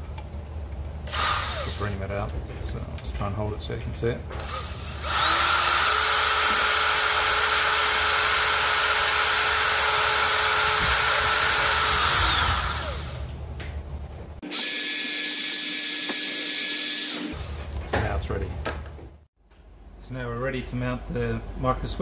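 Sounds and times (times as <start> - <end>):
cordless drill running: 1.1 - 1.8, 4.4 - 13.3, 14.4 - 17.5.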